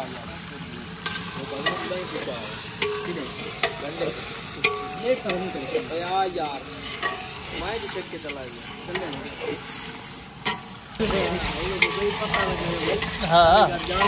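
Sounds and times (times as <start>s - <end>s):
food sizzling in oil: 0.0s - 14.0s
metal ladle scraping and clanking pot: 1.0s - 9.4s, 10.4s - 10.8s.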